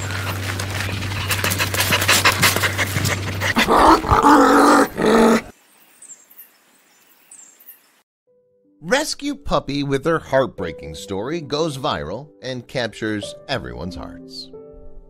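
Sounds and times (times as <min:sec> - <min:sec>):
dog panting: 0:00.0 - 0:04.2.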